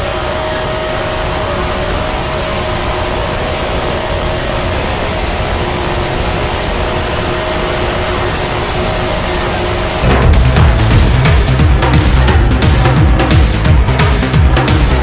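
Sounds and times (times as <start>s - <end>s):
steady low rumbling drone: 0.0s - 15.0s.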